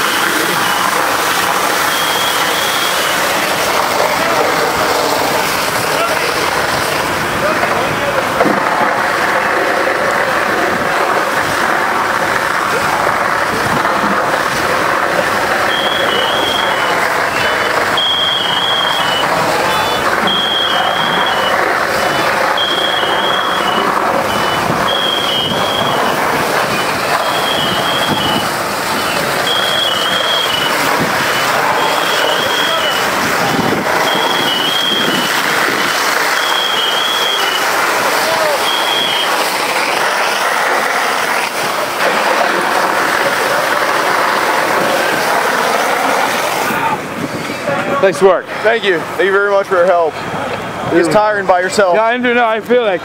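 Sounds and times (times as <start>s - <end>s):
fire engine pumps running: 0.0s - 53.0s
water streams spraying: 0.0s - 53.0s
two-tone electronic alarm beeping: 15.7s - 33.1s.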